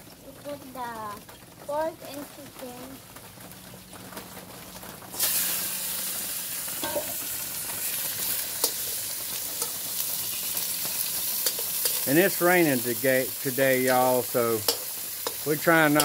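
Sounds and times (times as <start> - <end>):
meat sizzling in hot oil: 0.0 - 16.0
spatula clicking against wok: 11.4 - 12.0, 14.6 - 16.0.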